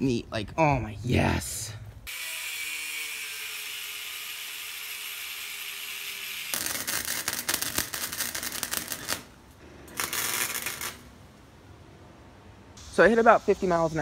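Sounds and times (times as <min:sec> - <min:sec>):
angle grinder grinding steel: 0:02.1 - 0:09.1
arc welder crackling: 0:02.1 - 0:11.5.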